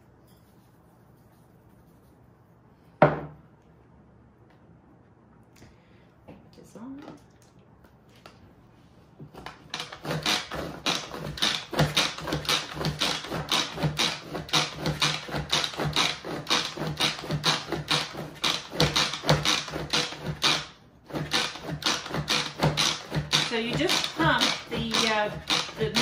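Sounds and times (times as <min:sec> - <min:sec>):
hand food processor plunger clattering: 0:09.4 - 0:26.0.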